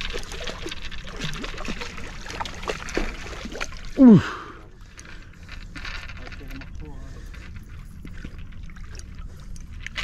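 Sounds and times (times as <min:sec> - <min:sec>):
fish splashing in water: 0:00.0 - 0:04.0
person exclaiming: 0:04.0 - 0:04.4.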